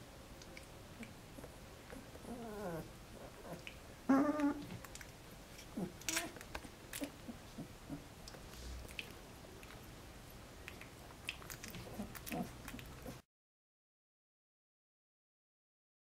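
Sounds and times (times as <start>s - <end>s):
puppies whimpering and squeaking: 1.9s - 4.8s, 5.6s - 8.0s
soft little clicks: 10.6s - 12.9s.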